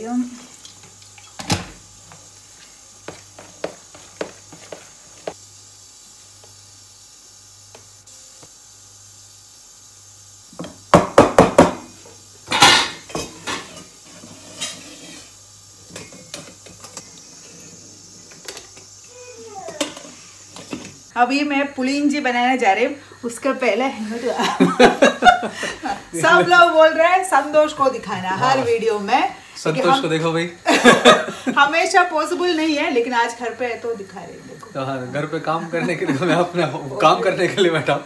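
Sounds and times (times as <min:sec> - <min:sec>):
utensil scrape: 0:13.2 - 0:15.4.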